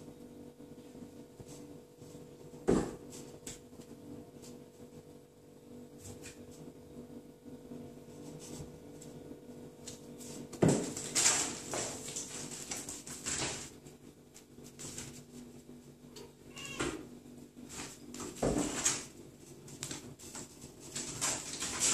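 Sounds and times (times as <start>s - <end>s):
thump on wooden floor: 2.6s - 3.0s
paws scuffling and claws clicking: 17.8s - 21.9s.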